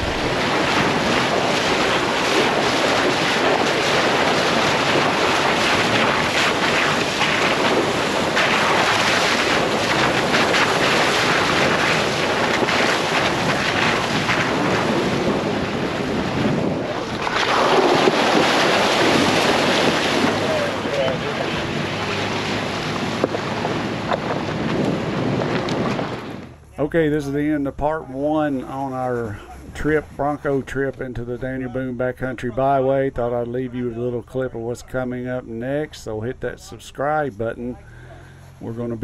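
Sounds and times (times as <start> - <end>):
tyres churning through water: 0.0 - 27.1
wind buffeting microphone: 0.0 - 35.8.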